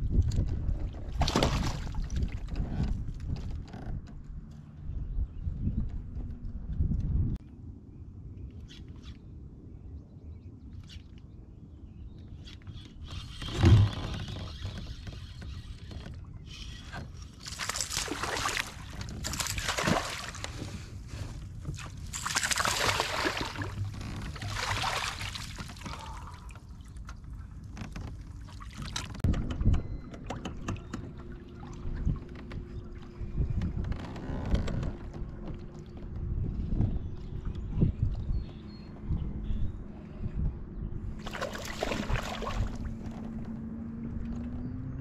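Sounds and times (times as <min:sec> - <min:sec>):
fish splashing water: 0:17.4 - 0:20.5, 0:21.8 - 0:26.5, 0:41.2 - 0:43.0.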